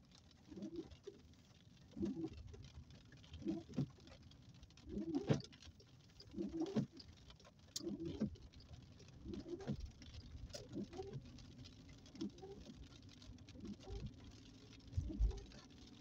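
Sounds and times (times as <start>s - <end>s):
windscreen wipers squealing: 6.2s - 7.0s, 9.2s - 9.9s, 10.5s - 11.2s, 15.0s - 15.6s.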